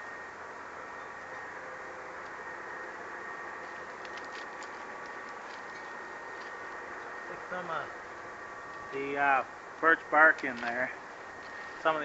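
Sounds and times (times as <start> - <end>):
twigs clicking: 3.6 - 7.2.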